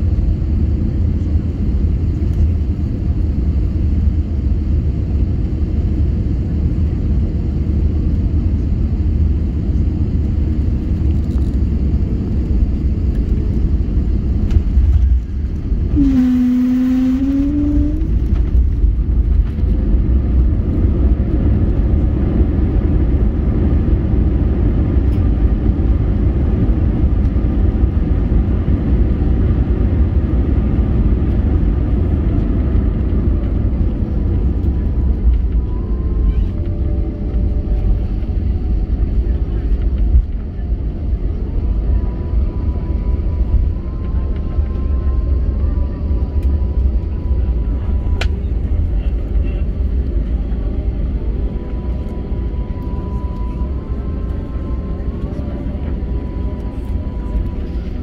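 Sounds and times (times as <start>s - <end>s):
deep rumble of aircraft engines: 0.0s - 58.0s
short rising tone: 15.9s - 18.3s.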